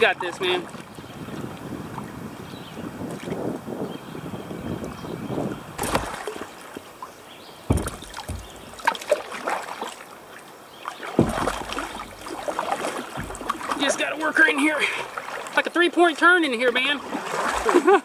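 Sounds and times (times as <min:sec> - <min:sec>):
paddle strokes splashing: 0:00.0 - 0:02.4, 0:05.4 - 0:18.0
water sloshing against kayak hull: 0:00.0 - 0:18.0
deep thumps: 0:05.8 - 0:06.4, 0:07.6 - 0:09.1, 0:11.2 - 0:14.0
sharp knocks: 0:07.7 - 0:09.1, 0:11.2 - 0:13.8.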